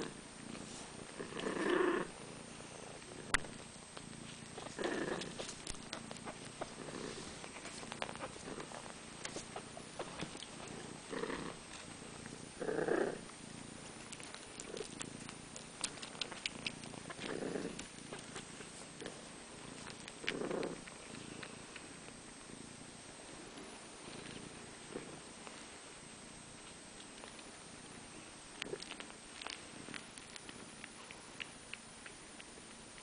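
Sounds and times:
cats purring: 0.0 - 33.0
small clicks and rustles: 3.0 - 10.8, 13.3 - 22.2, 26.6 - 33.0.

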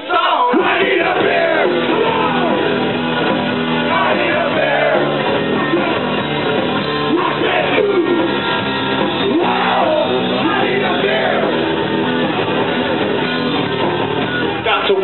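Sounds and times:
shouted vocals: 0.0 - 2.9, 3.7 - 6.1, 7.1 - 8.4, 9.2 - 11.6
drums: 0.0 - 15.0
electric guitar: 1.1 - 15.0.

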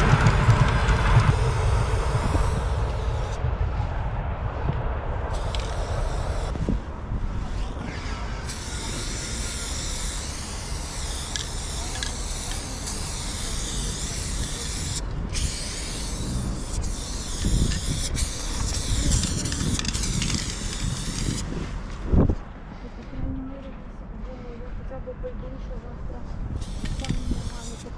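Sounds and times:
spray paint can hissing: 1.2 - 3.4, 5.3 - 6.7, 7.4 - 21.6, 26.6 - 27.9.

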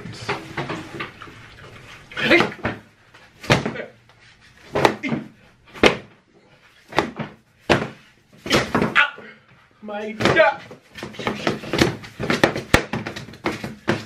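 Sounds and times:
foam noodles smacking a person: 4.7 - 6.1, 6.9 - 9.1, 10.2 - 14.0.

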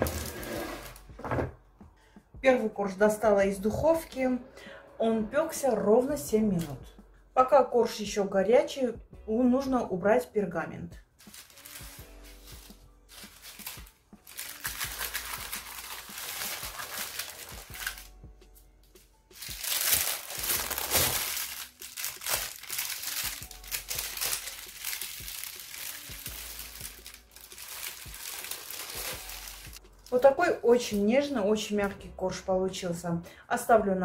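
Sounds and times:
parchment paper crinkling: 11.2 - 18.1, 19.3 - 30.2.

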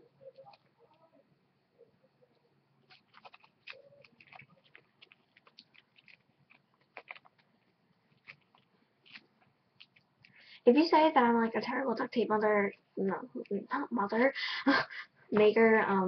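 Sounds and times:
duct tape crinkling and clicking: 2.8 - 10.4.

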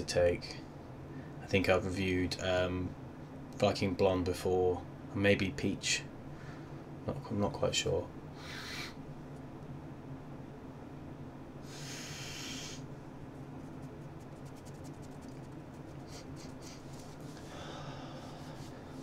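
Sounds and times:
sharp nose sniff: 11.6 - 12.9, 16.0 - 19.0.

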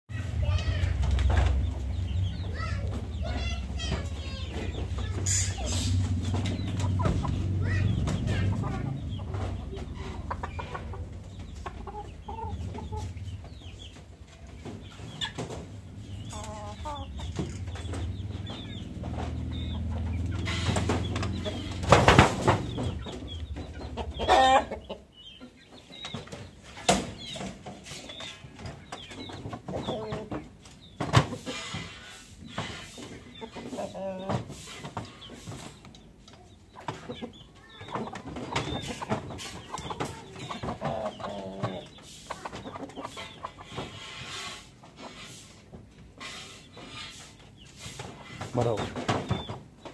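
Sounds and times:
chickens clucking and calling: 0.1 - 49.9.

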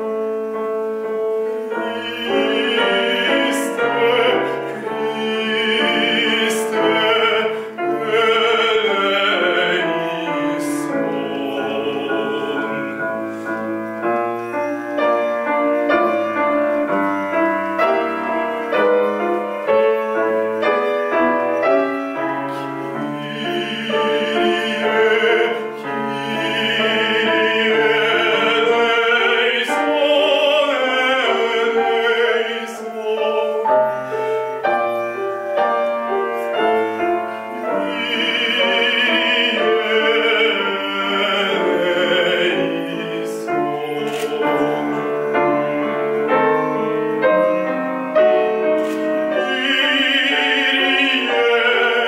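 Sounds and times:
grand piano playing: 0.0 - 52.0
man singing operatically: 1.6 - 52.0.

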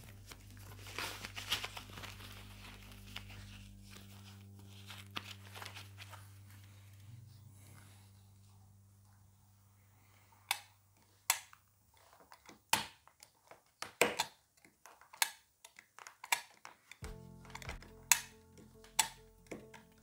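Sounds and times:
background music: 0.0 - 9.0, 17.0 - 20.0
knife cutting plastic clicks: 11.3 - 17.0.

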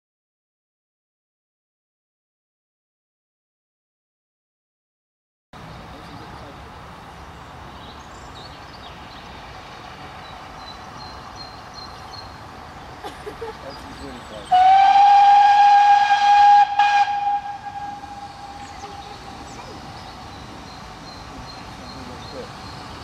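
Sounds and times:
steam locomotive whistle: 14.5 - 19.2.

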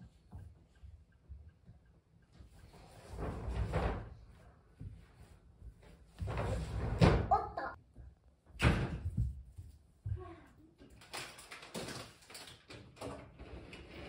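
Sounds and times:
household rustling: 2.6 - 7.4.

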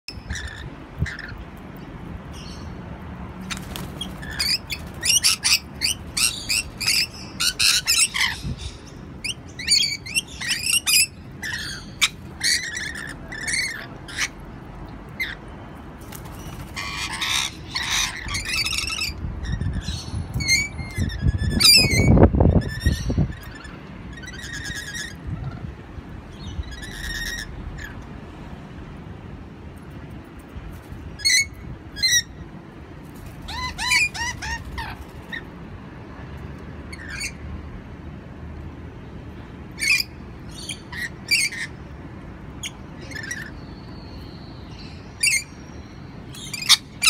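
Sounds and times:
lorikeets squawking: 0.1 - 1.4, 3.4 - 14.5, 16.2 - 25.7, 26.4 - 28.0, 33.4 - 35.5, 36.9 - 37.4, 39.8 - 41.9, 42.6 - 47.0.

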